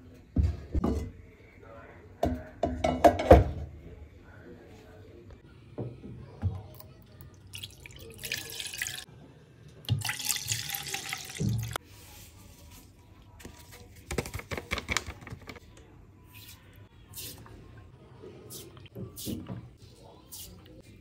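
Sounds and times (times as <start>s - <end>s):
milk pouring into a pan: 7.5s - 9.1s, 9.9s - 11.8s.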